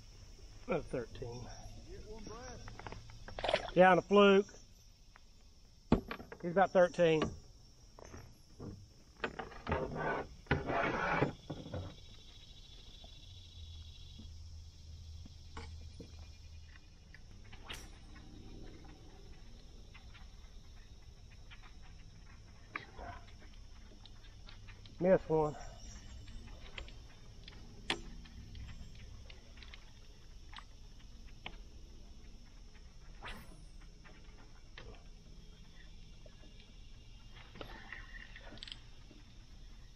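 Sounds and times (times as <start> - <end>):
fishing gear rubbing and scraping: 9.8 - 11.5
faint low rumble: 13.4 - 25.0.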